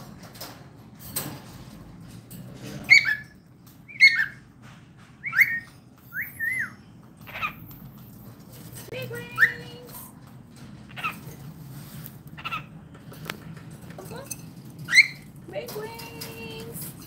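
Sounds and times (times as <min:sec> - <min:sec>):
cockatiel chirping and whistling: 0:02.9 - 0:04.4, 0:05.2 - 0:07.6.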